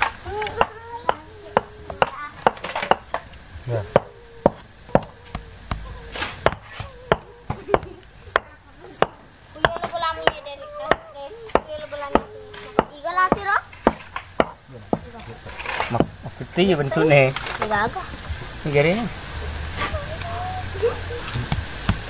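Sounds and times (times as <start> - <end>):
paving bricks clacking: 0.0 - 16.4, 21.1 - 22.0.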